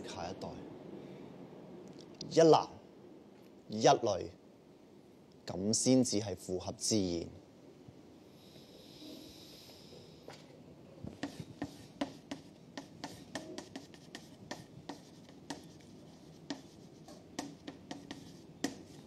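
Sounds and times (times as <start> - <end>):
pen tapping and scratching: 11.1 - 19.0.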